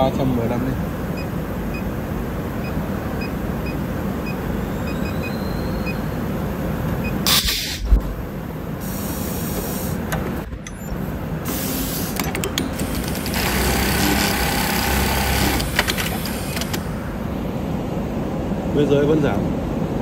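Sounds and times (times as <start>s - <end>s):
pneumatic air hissing: 7.2s - 7.9s, 8.8s - 10.1s, 11.4s - 13.2s
sharp mechanical clicks: 12.1s - 16.9s
sewing machine stitching: 12.3s - 16.8s.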